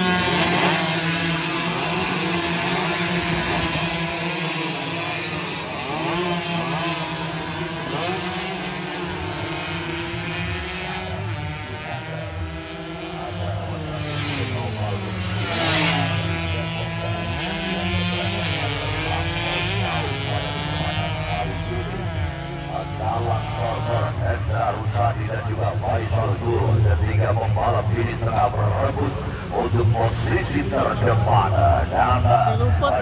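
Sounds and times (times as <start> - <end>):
motorcycles revving past: 0.0 - 25.1.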